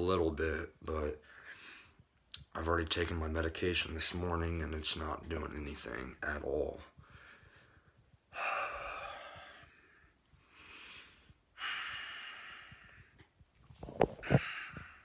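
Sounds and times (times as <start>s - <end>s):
man breathing heavily: 7.0s - 13.4s, 14.1s - 15.0s.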